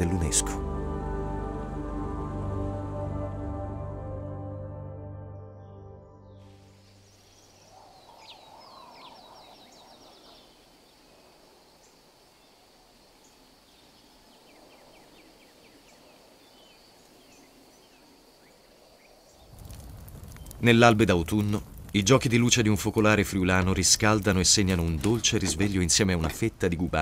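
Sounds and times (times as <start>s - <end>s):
bird chirps and trills: 6.9s - 10.6s.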